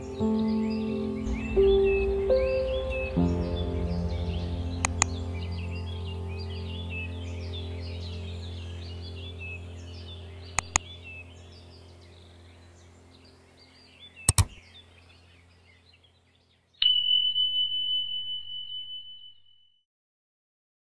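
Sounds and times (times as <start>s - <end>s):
low hum: 0.0s - 16.3s
birdsong: 0.0s - 19.6s
mouse clicks: 4.8s - 5.1s, 10.6s - 10.8s, 14.3s - 14.6s.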